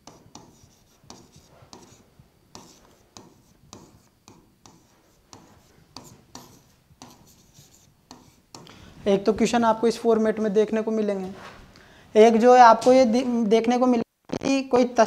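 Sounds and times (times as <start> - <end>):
pen scratching on whiteboard: 0.0 - 8.7.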